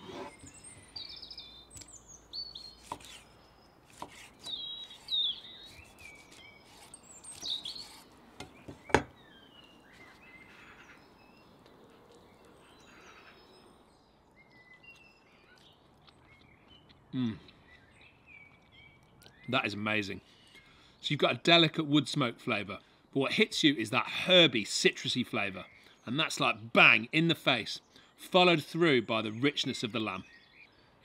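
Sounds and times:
songbirds chirping: 0.0 - 31.0
knife knocking on chopping board: 8.4 - 9.1.

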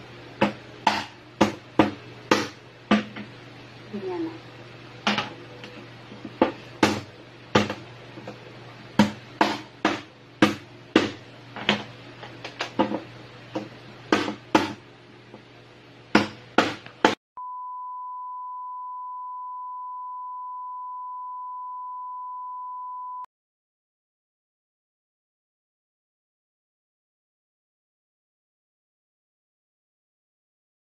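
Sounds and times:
knife chopping on cutting board: 0.4 - 3.2, 6.3 - 8.4, 9.0 - 11.9, 13.6 - 14.8, 16.2 - 17.2
high beep: 17.4 - 23.3.

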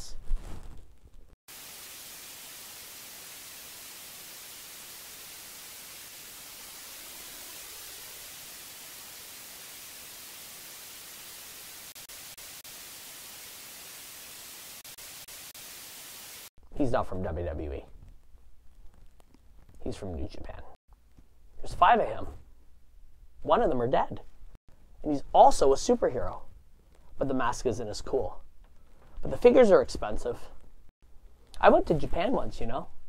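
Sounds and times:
white noise static hiss: 1.5 - 16.5.

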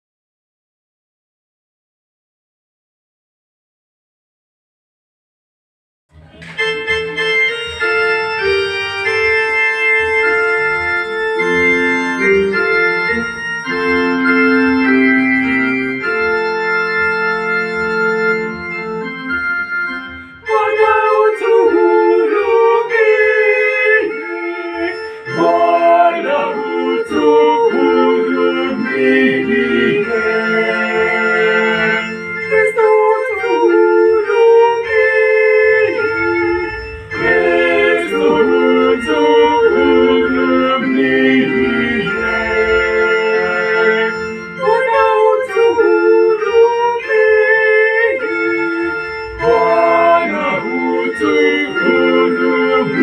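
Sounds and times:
organ chords: 6.1 - 53.0
choir singing in parts: 20.4 - 53.0.

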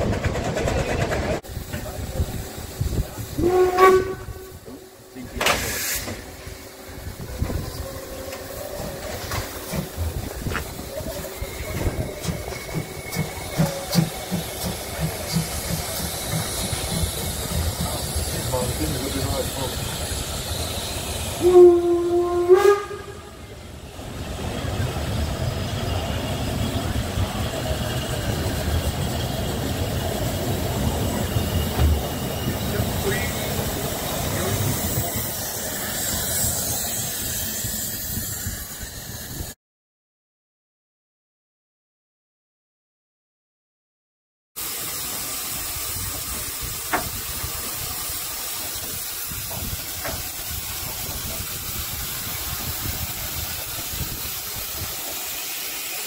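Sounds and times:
steam locomotive exhaust beats: 0.0 - 39.6, 44.6 - 56.0
train coaches rolling past: 0.0 - 39.6, 44.6 - 56.0
steam hissing from drain cocks: 8.2 - 21.8, 44.6 - 56.0.

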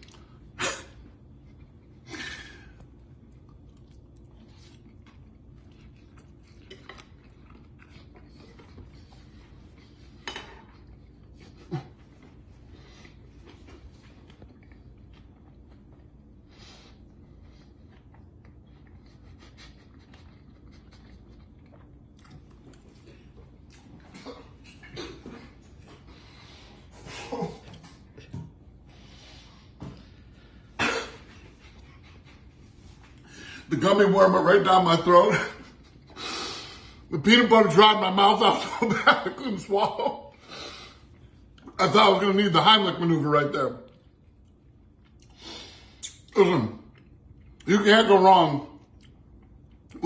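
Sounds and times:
faint chewing: 0.0 - 26.8, 43.8 - 47.7, 48.8 - 50.0
man coughing and gagging: 24.2 - 25.7, 27.0 - 27.9, 30.7 - 31.4.

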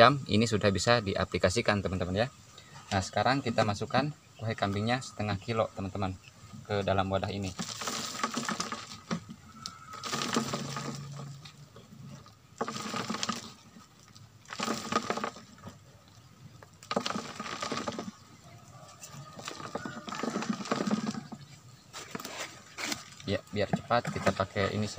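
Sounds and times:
manure scraping into plastic can: 6.8 - 24.9.

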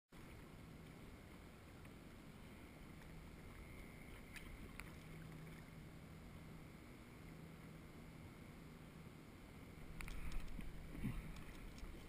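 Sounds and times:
water lapping against kayak hull: 0.2 - 6.1, 9.8 - 12.0
small ticks: 9.9 - 12.0.

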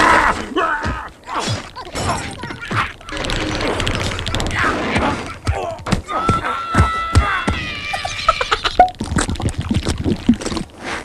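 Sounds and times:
cartoon crashes and clatter: 1.4 - 5.5.

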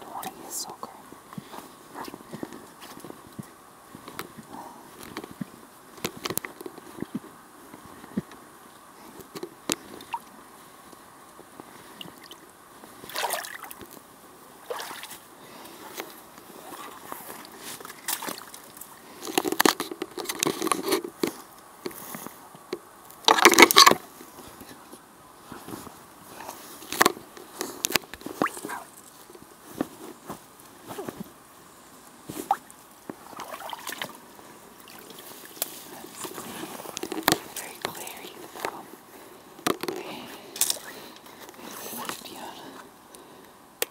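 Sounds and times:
boots splashing through water and mud: 13.0 - 13.8, 14.6 - 15.2, 16.6 - 18.8, 32.4 - 34.2.

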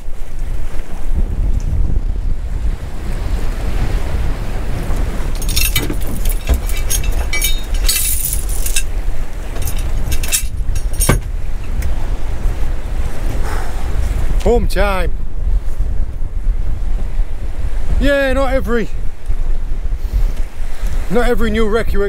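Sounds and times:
sea noise: 0.0 - 22.0
wind buffeting microphone: 0.0 - 22.0
anchor chain rattling: 5.2 - 12.0.

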